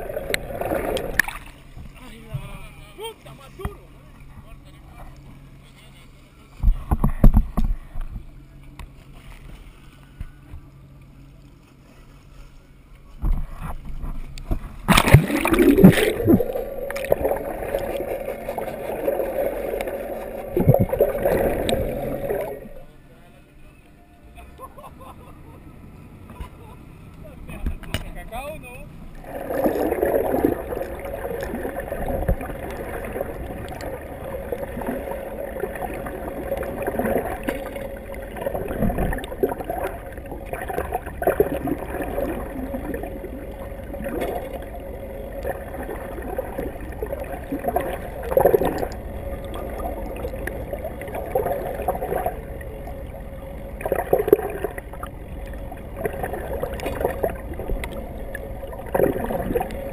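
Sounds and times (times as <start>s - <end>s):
water rushing and gurgling: 0.0s - 3.7s, 13.1s - 23.0s, 27.3s - 59.9s
steady hum: 0.0s - 59.9s.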